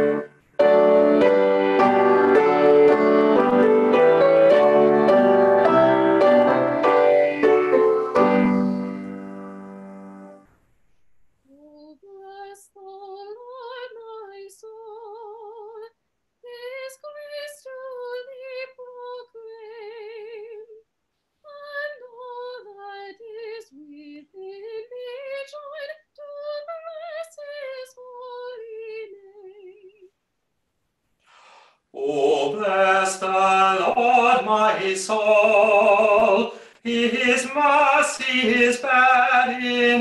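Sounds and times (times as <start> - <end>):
piano chord: 0.0 - 10.4
woman singing a hymn: 11.5 - 20.8, 21.5 - 30.1, 32.2 - 40.0.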